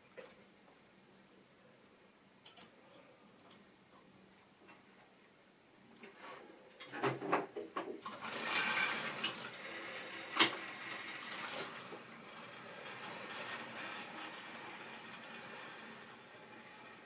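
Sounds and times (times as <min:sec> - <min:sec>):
model train rolling on track: 0:08.0 - 0:17.0.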